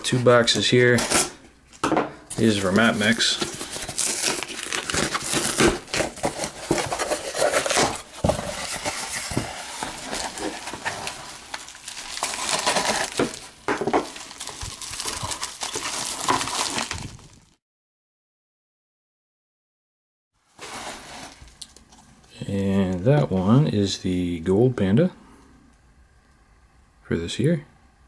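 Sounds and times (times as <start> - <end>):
cardboard and plastic rustling: 0.0 - 17.6, 20.5 - 22.3.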